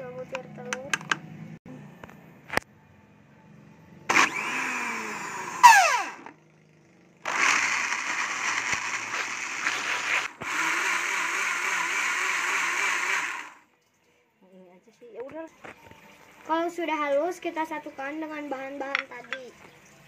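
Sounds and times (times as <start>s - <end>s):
blender falling whine: 4.1s - 6.4s, 7.2s - 13.6s
blender running: 4.1s - 6.4s, 7.2s - 13.6s.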